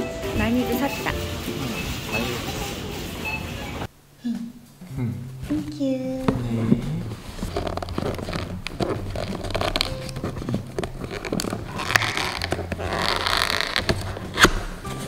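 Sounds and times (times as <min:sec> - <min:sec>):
packaging crinkling and scraping: 0:07.1 - 0:15.0
tape or cardboard ripping: 0:07.2 - 0:14.9.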